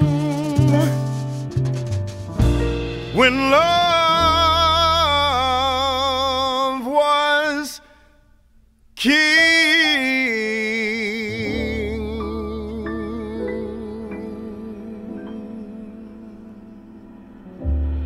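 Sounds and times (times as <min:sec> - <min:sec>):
man singing with vibrato: 0:00.0 - 0:01.1, 0:03.1 - 0:08.1, 0:09.0 - 0:17.0
piano chords: 0:00.0 - 0:06.5, 0:09.2 - 0:18.0.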